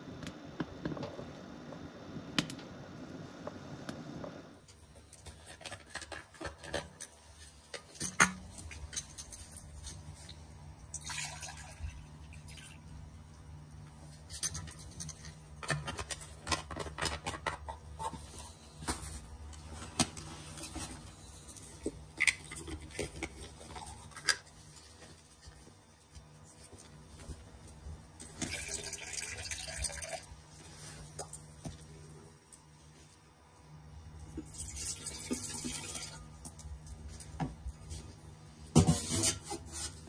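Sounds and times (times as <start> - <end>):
low steady hum: 0.0 - 40.0.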